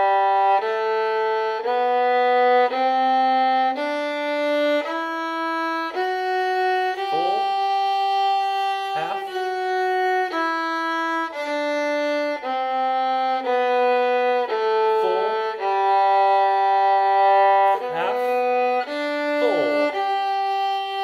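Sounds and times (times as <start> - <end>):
violin playing a scale: 0.0 - 21.0.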